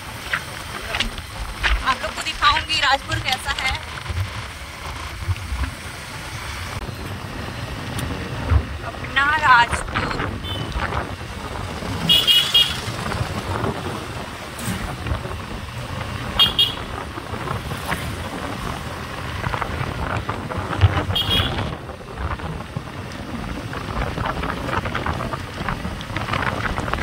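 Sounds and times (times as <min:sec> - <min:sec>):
vehicle engine and road noise: 0:00.0 - 0:27.0
vehicle horn toots: 0:10.4 - 0:10.8, 0:12.1 - 0:12.9, 0:16.4 - 0:16.9, 0:21.2 - 0:21.7.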